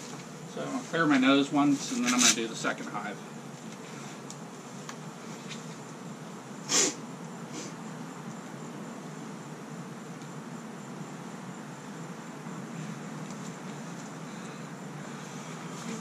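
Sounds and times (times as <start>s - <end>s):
person snorting to clear nose: 6.7s - 7.8s.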